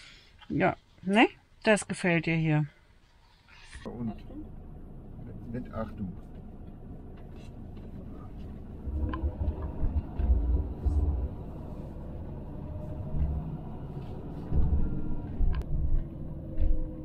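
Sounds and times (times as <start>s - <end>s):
road rumble: 3.6s - 17.0s
van engine: 3.6s - 17.0s.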